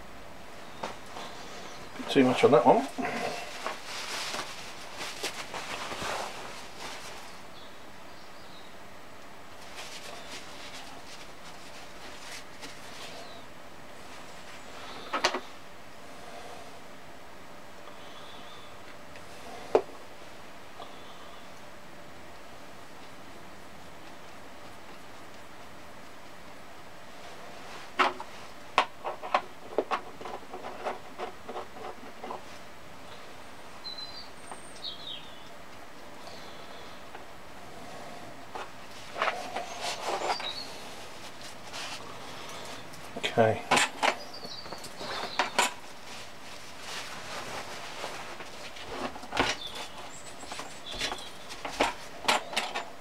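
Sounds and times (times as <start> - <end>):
faint bird chirp: 7.2 - 8.8, 13.1 - 13.5, 17.9 - 18.9, 33.0 - 35.6, 36.2 - 37.1, 39.3 - 41.0, 44.1 - 45.6.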